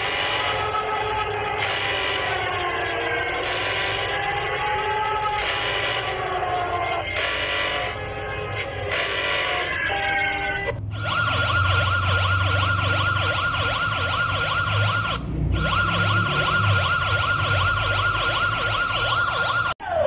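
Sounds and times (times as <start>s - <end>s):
sweeping siren warble: 0.0s - 20.0s
high alarm tone: 8.9s - 20.0s.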